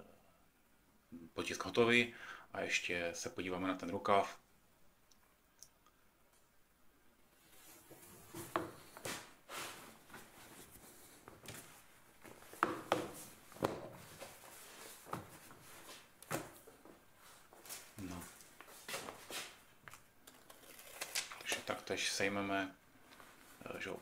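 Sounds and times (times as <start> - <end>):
fabric rustling and brushing: 7.3 - 19.6.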